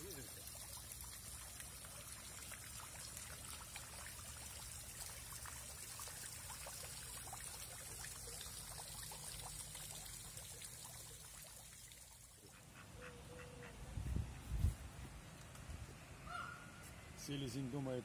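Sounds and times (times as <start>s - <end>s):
fountain water trickling and splashing: 0.0s - 12.8s.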